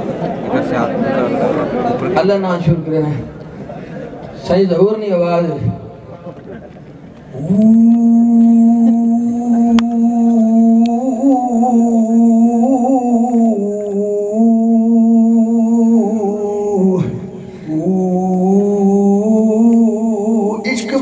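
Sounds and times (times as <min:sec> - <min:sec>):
man singing long wordless note: 0:07.3 - 0:21.0
man breathing in: 0:17.3 - 0:17.8.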